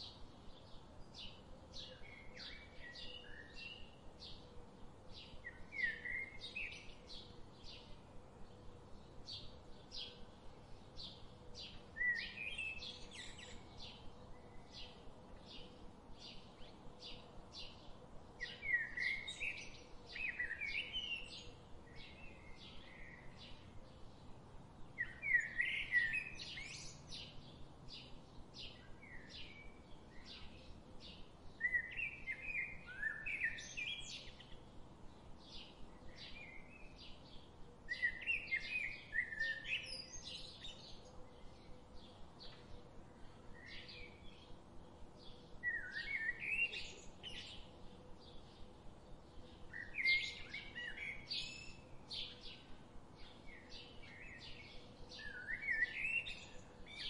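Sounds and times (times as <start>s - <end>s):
birds warbling song: 0.0s - 57.0s.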